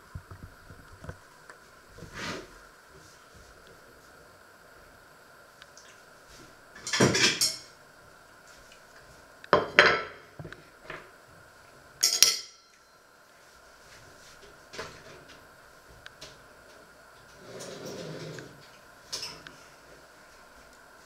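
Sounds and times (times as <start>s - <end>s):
dishes and cutlery clattering: 6.8s - 7.7s.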